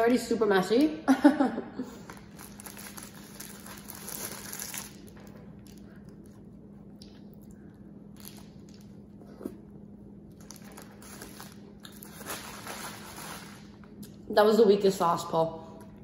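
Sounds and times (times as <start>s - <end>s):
steady low hum: 0.0s - 16.0s
paper wrapper rustling: 2.0s - 5.3s, 10.4s - 13.7s
soft chewing: 5.2s - 12.1s.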